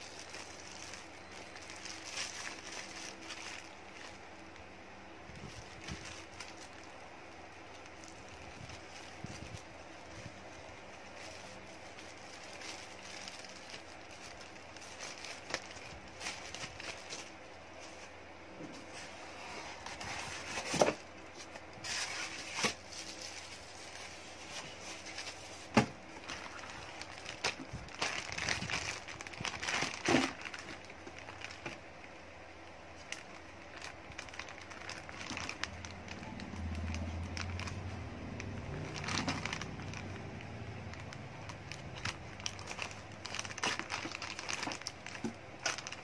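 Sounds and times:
plastic wrap crinkling: 0:00.0 - 0:46.0.

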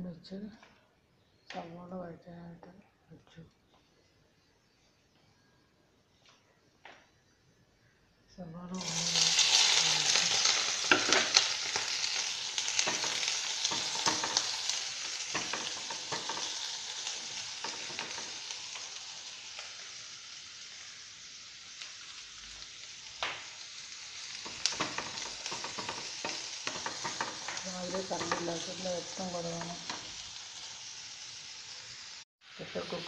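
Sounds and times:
onions sizzling in oil: 0:08.6 - 0:33.0
stirring clicks and scrapes on pan: 0:12.6 - 0:19.0, 0:24.3 - 0:30.2.

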